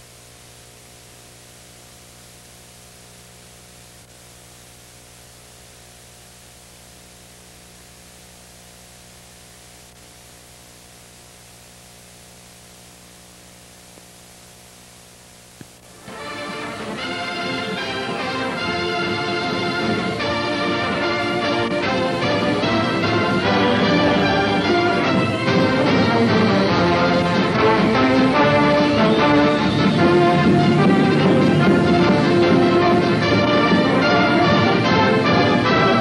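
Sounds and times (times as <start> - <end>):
low mains hum: 0.0 - 36.0
steady hiss: 0.0 - 36.0
brass-led music: 15.9 - 36.0.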